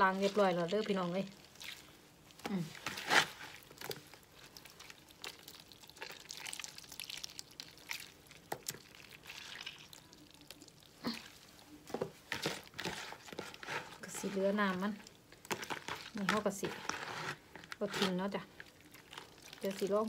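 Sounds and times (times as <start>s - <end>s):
hands squeezing wet vegetables: 0.0s - 20.0s
juice dripping into plastic bowl: 3.5s - 11.4s, 18.6s - 20.0s.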